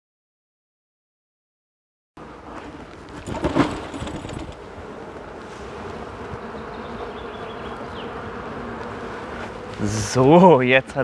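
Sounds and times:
bee swarm buzzing: 2.2s - 11.0s
knock and rustle: 3.1s - 4.6s.

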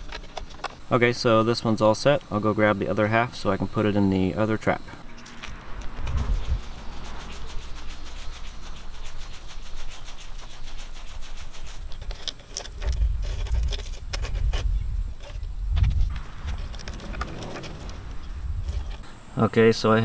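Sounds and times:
wind buffeting microphone: 5.0s - 8.6s, 12.8s - 19.6s.

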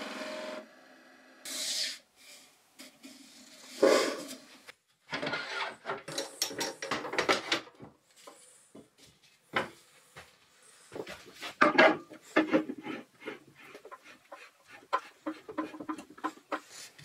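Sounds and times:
wood and metal scraping and knocking: 5.1s - 8.0s, 11.0s - 16.9s.

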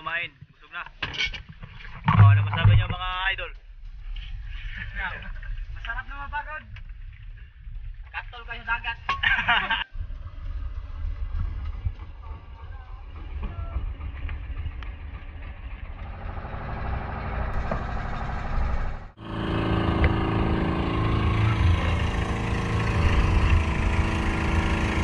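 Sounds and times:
boat engine running: 2.0s - 3.1s, 10.3s - 25.0s.

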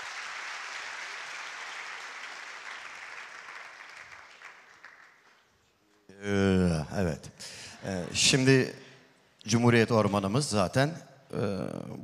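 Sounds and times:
audience applauding: 0.0s - 5.5s.

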